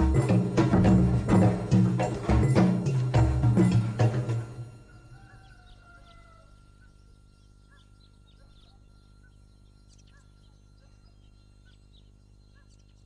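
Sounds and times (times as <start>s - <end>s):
steady background hum: 0.0s - 13.0s
faint bird chirps: 4.6s - 13.0s.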